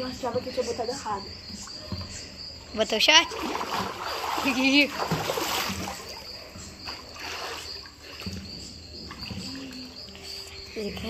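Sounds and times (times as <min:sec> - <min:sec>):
insect chirping: 0:00.0 - 0:11.0
pool water sloshing and splashing: 0:03.0 - 0:10.5.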